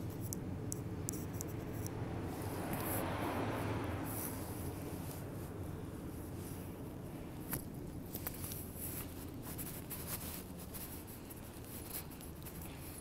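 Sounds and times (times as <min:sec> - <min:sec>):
footsteps clicks and rustles: 0:06.2 - 0:13.0.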